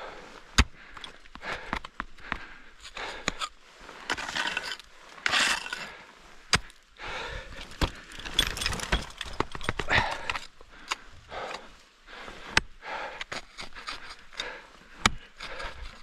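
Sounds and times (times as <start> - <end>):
climbing gear scraping on ice: 2.8 - 6.7, 13.2 - 16.0
metal climbing hardware jangling: 7.9 - 10.6.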